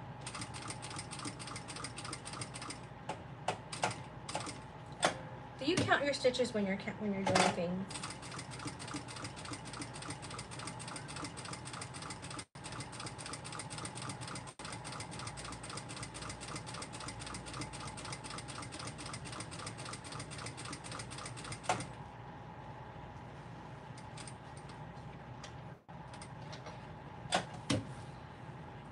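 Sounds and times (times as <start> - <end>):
sewing machine stitching: 7.9 - 21.9.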